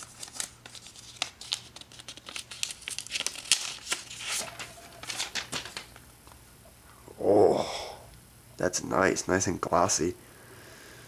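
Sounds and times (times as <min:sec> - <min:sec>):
packaging crinkling and rustling: 0:00.0 - 0:06.1.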